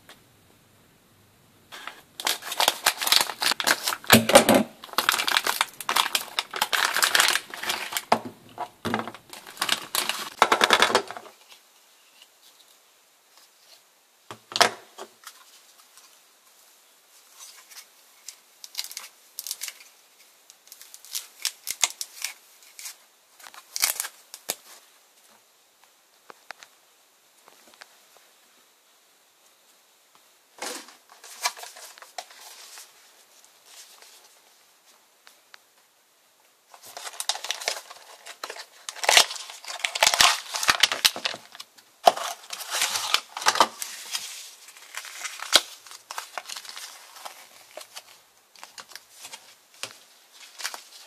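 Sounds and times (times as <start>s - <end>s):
plastic bag crinkling: 1.7s - 11.4s, 36.7s - 51.0s.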